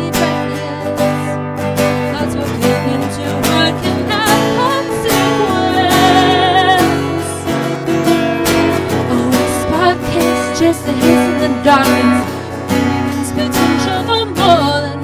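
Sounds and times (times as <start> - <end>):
woman singing: 0.0 - 7.8, 8.6 - 15.0
acoustic guitar strumming: 0.0 - 15.0.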